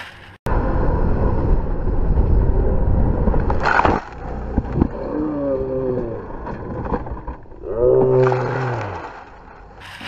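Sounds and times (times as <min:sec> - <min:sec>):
motorcycle engine noise: 0:00.0 - 0:06.2
rushing wind: 0:00.0 - 0:07.6
groaning tone falling in pitch: 0:04.9 - 0:06.4, 0:07.6 - 0:09.1.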